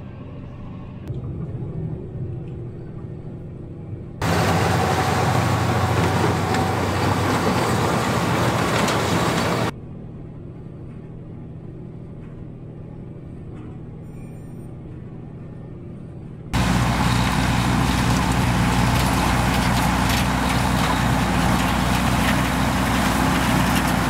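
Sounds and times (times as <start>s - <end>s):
tractor and baler running loudly: 4.2s - 9.7s, 16.6s - 24.0s
muffled engine hum inside cab: 14.2s - 22.5s.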